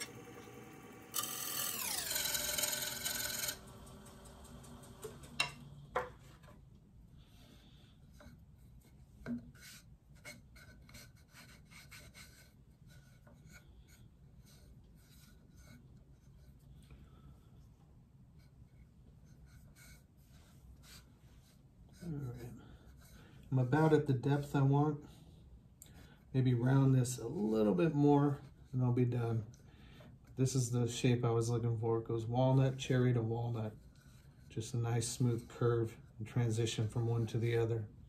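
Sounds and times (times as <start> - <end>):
lathe motor whine: 0.0 - 6.0
hand rubbing wooden bowl: 7.3 - 16.8, 18.3 - 24.3.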